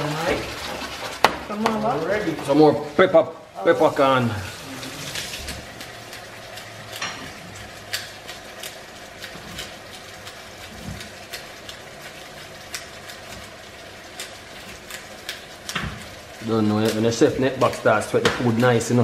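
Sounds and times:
food sizzling: 0.0 - 19.0
pepper grinder crunching: 4.9 - 19.0.

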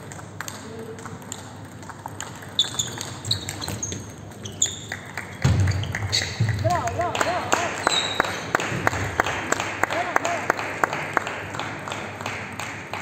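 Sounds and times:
table tennis ball clicking: 0.1 - 5.8
shoes squeaking on floor: 2.5 - 6.8, 7.8 - 8.6.

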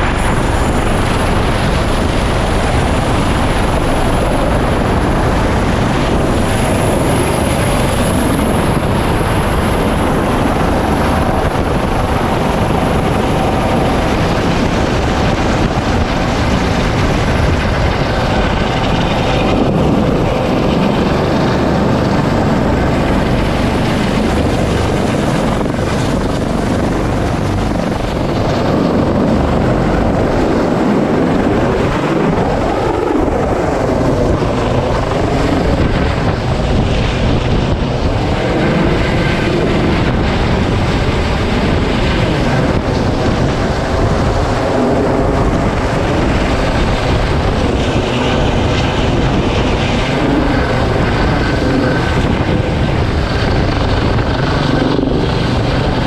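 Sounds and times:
helicopter rotor and turbine engines: 0.0 - 56.0.

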